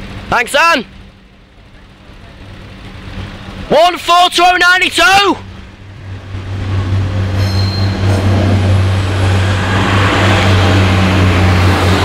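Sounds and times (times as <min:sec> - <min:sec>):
diesel engine drone: 0:00.0 - 0:12.0
train wheels rumbling: 0:05.2 - 0:12.0.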